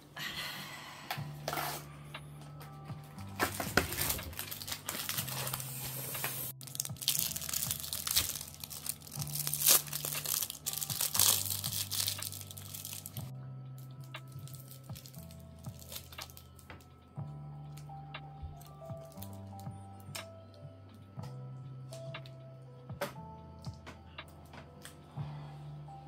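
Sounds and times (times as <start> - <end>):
soft background music: 0.0 - 26.0
crunching crispy pancake: 6.6 - 13.3.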